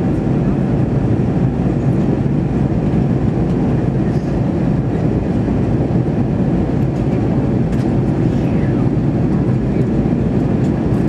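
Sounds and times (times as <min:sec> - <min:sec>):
airplane cabin drone: 0:00.0 - 0:11.0.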